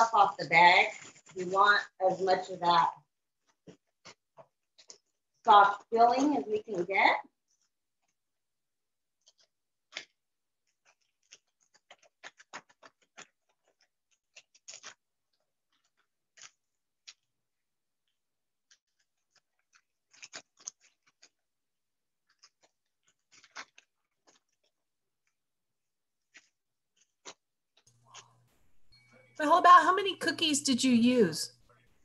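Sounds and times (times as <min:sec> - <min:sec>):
plastic bag crinkling: 0:22.2 - 0:25.4.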